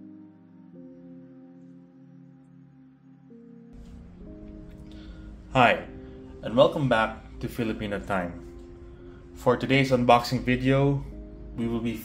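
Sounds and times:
quiet instrumental music: 0.0 - 12.0.

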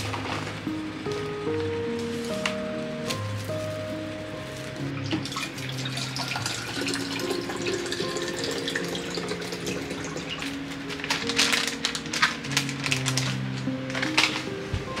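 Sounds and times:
background music: 0.0 - 15.0
liquid pouring into bottle: 5.3 - 10.4.

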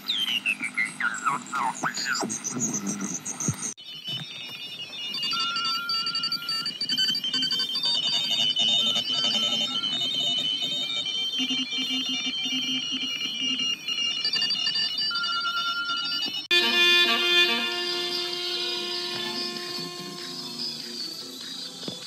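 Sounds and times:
radio band hiss: 1.0 - 4.2, 17.5 - 22.0
morse code beeps: 3.8 - 21.8.

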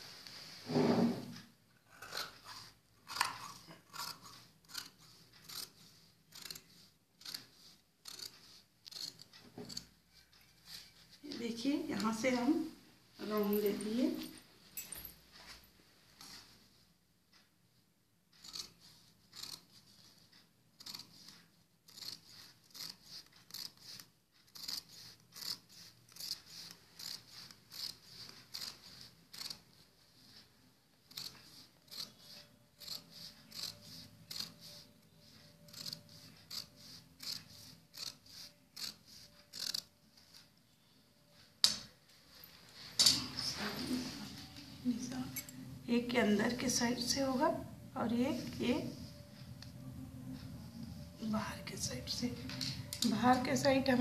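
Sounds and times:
scissors snipping cloth: 1.9 - 9.9, 18.4 - 20.2, 20.8 - 21.3, 21.9 - 29.7, 31.1 - 34.8, 35.6 - 39.9.

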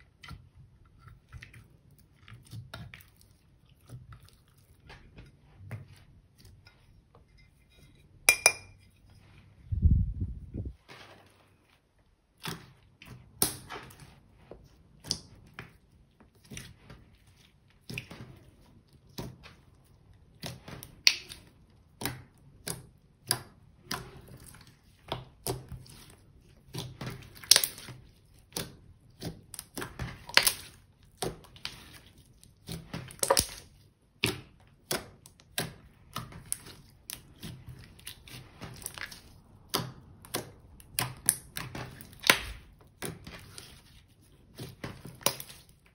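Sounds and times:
slime kneaded by hand: 9.3 - 45.9.

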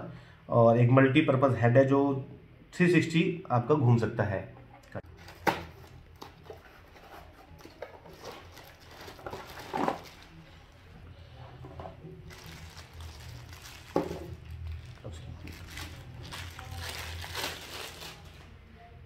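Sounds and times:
plastic and cardboard rustling: 5.0 - 10.8, 11.5 - 18.6.

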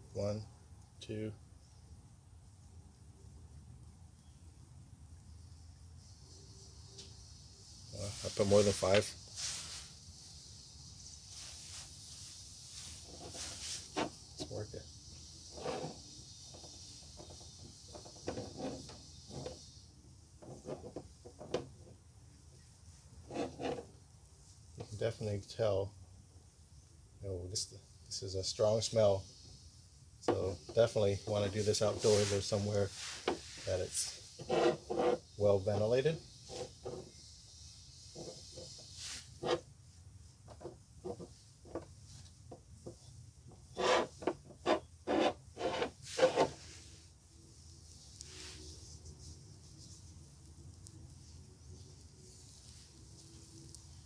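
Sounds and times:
foam applicator rubbing plastic: 11.3 - 14.2, 30.4 - 37.0, 43.7 - 47.0.

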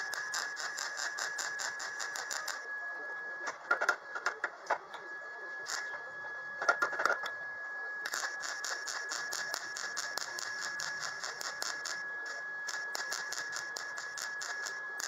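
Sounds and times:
welding arc crackling: 0.0 - 2.6, 5.6 - 5.9, 8.1 - 15.0
steady high whine: 0.0 - 15.0.

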